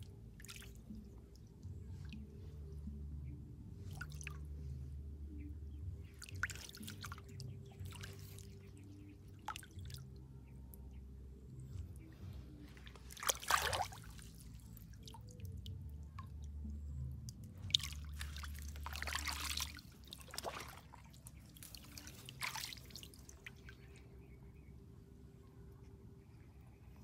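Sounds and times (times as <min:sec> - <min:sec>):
water dripping and trickling: 0:00.0 - 0:03.0, 0:03.8 - 0:04.5, 0:05.9 - 0:10.9, 0:11.6 - 0:24.1
hands splashing in water: 0:12.8 - 0:14.4, 0:17.7 - 0:23.6.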